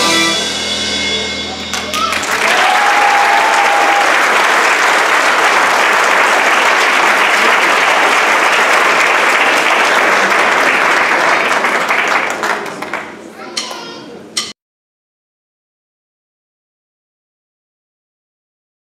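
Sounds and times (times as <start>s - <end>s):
audience applauding: 1.6s - 13.3s.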